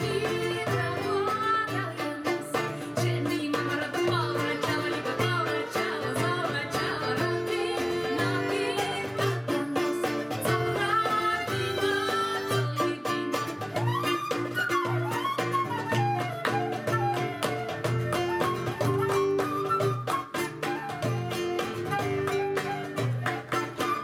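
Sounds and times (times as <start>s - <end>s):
strummed acoustic guitar: 0.0s - 24.0s
violins: 0.0s - 24.0s
woman singing: 0.0s - 24.0s.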